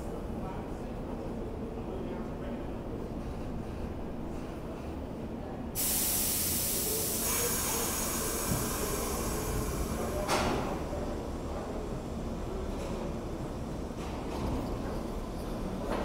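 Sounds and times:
train air brakes hissing: 0:05.8 - 0:10.6.

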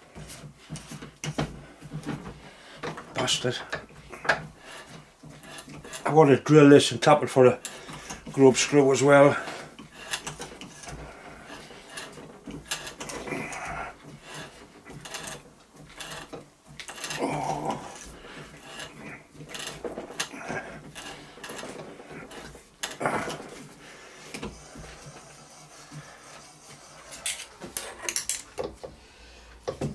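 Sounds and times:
metal tools clicking and scraping: 0:27.1 - 0:28.6.

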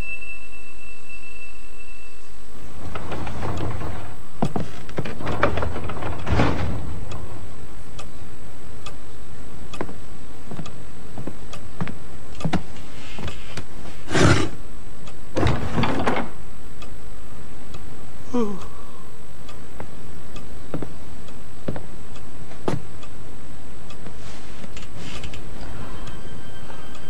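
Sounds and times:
wall clock ticking: 0:02.8 - 0:09.0, 0:12.4 - 0:12.6, 0:15.0 - 0:15.3.

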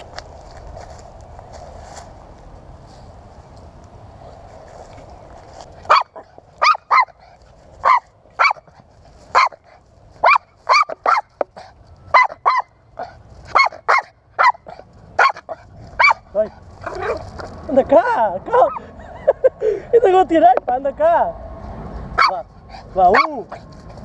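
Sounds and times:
dog barking excitedly: 0:05.8 - 0:17.3, 0:22.1 - 0:23.7.

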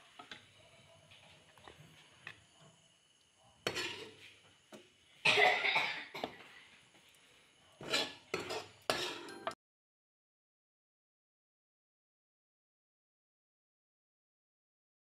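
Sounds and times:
metal spatula scraping a wok: 0:03.6 - 0:04.4, 0:07.8 - 0:09.6.

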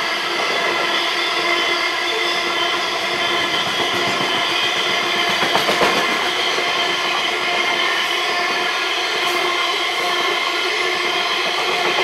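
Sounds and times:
freight train wheels rumbling: 0:00.0 - 0:12.0
sharp clacks: 0:03.0 - 0:06.7.

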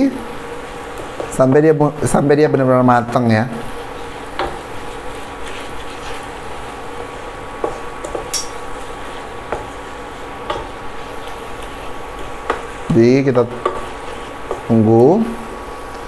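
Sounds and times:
spatula scraping and tapping pan: 0:00.9 - 0:01.4, 0:03.8 - 0:06.8, 0:07.6 - 0:15.0
sambal sizzling in oil: 0:03.3 - 0:16.0.

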